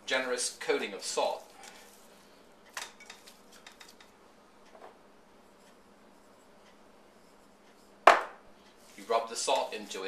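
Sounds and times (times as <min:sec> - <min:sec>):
hands rubbing raw meat in bowl: 0:08.8 - 0:10.0.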